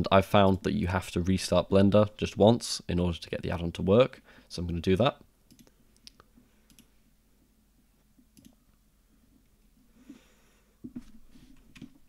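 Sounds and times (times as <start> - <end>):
computer mouse clicks: 5.5 - 6.9, 8.4 - 8.6.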